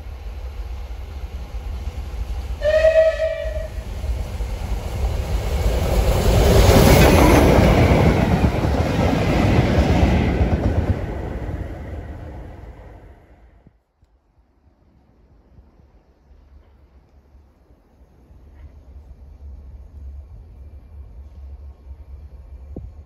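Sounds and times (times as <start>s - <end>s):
train passing at speed: 0.0s - 13.8s, 14.6s - 23.0s
steam locomotive whistle: 2.6s - 3.9s.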